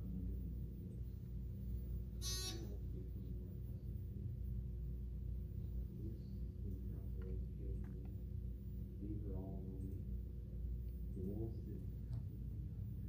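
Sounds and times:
elevator chime: 0.0 - 7.7
low elevator hum: 0.0 - 13.0.

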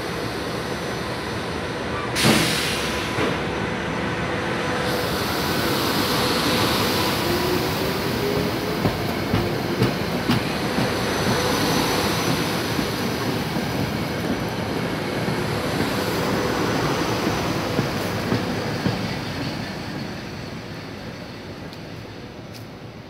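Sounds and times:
train wheels rumbling on rail: 0.0 - 23.0.

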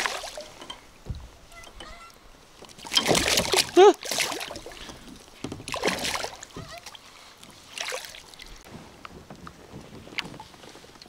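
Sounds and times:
water splashing: 0.0 - 8.7.

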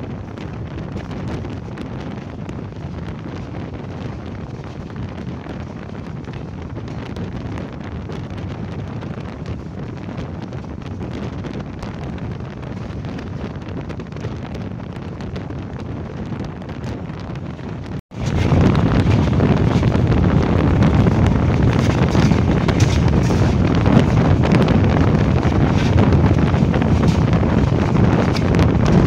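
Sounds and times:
train running rumble: 0.0 - 29.0
wind rushing over microphone: 0.0 - 29.0.

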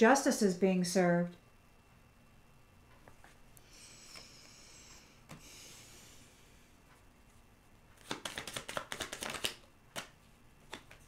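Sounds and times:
cards being shuffled: 7.9 - 11.0.

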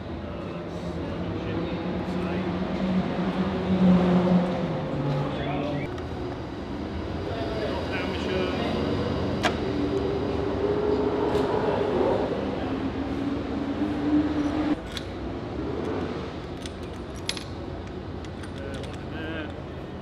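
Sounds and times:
light metallic clinks and clicks: 16.4 - 19.6.

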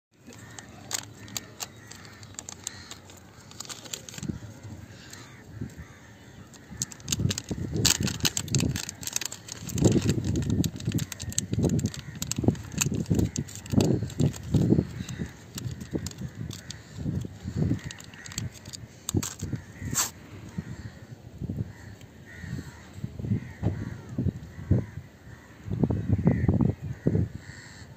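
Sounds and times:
plastic packet crinkling: 0.2 - 5.4, 6.5 - 20.1.

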